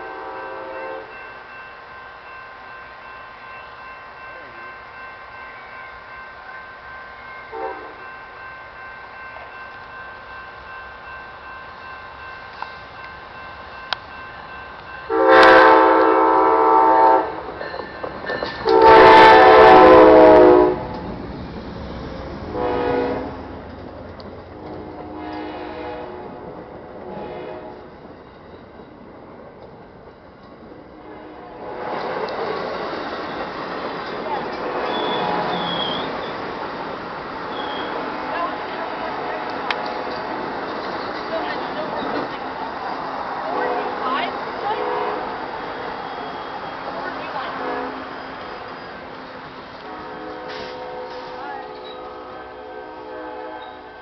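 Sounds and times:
train horn blast: 0.0s - 1.2s, 7.5s - 8.1s, 15.1s - 17.5s, 18.6s - 20.9s, 22.5s - 23.5s, 24.6s - 26.4s, 27.0s - 27.9s, 31.0s - 32.1s, 34.4s - 36.1s, 43.5s - 45.4s, 46.0s - 48.2s, 49.8s - 54.0s
passenger train approaching: 0.0s - 54.0s.

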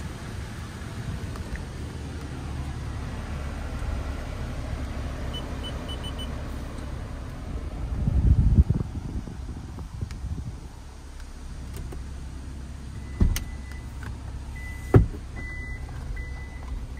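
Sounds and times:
low rumble: 0.0s - 14.6s
low cabin hum: 0.0s - 16.9s
control panel beeping: 5.3s - 6.3s.

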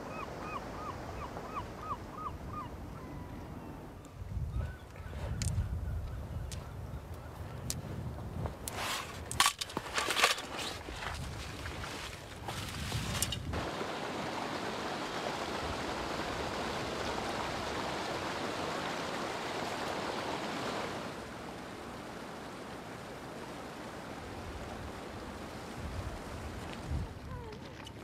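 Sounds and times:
stream water rushing: 9.8s - 26.9s.

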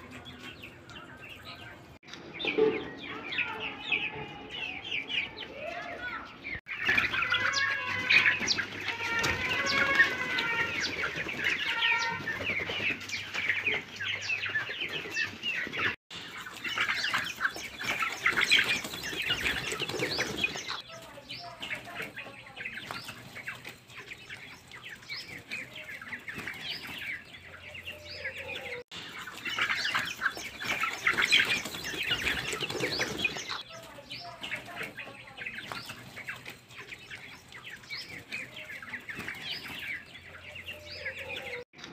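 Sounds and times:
chickens clucking and chirping: 0.0s - 41.9s
wings flapping: 6.7s - 27.2s, 28.9s - 40.2s.

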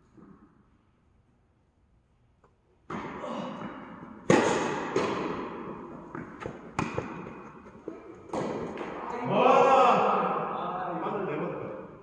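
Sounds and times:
tennis ball pops in echoing hall: 2.8s - 9.4s.

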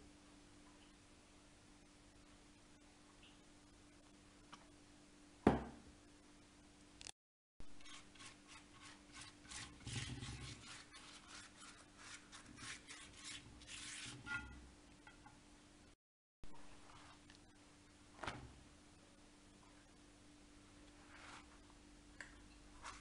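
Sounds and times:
pastry brush strokes in a pan: 7.6s - 14.6s, 16.5s - 17.6s, 20.8s - 21.7s, 22.8s - 23.0s.

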